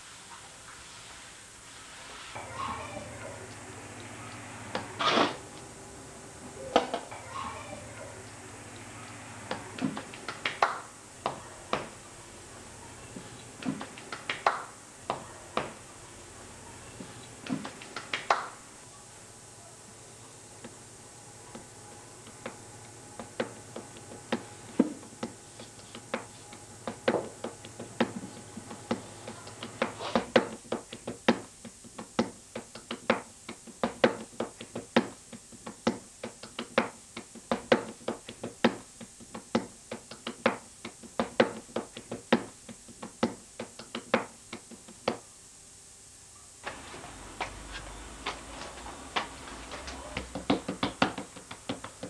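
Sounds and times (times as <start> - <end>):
hands slapping dough: 29.6 - 45.2, 50.1 - 52.0.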